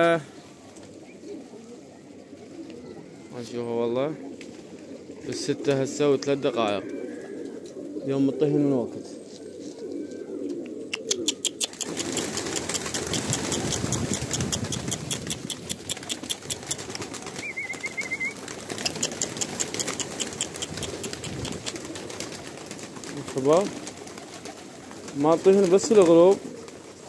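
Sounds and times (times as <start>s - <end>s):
pigeons cooing: 0.0s - 27.0s
pigeons flapping wings: 10.7s - 27.0s.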